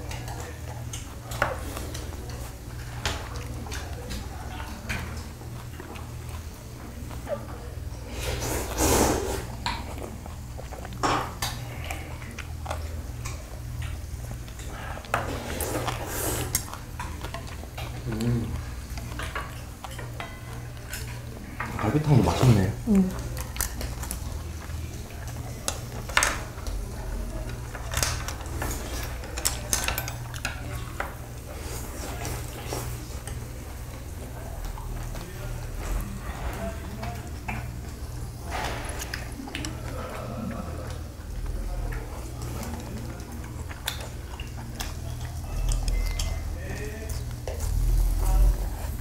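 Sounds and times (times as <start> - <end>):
chewing: 0.0 - 49.0
chopsticks and spoons clinking: 42.6 - 47.3.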